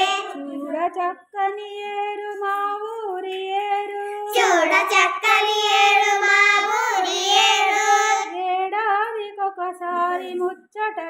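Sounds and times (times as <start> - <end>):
child singing in high voice: 0.0 - 0.8, 4.0 - 8.5.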